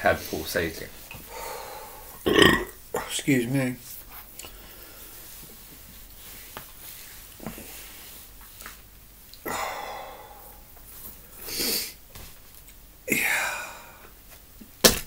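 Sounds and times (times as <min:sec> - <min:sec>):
man breathing hard: 0:01.2 - 0:02.2, 0:09.4 - 0:12.0, 0:13.1 - 0:14.1.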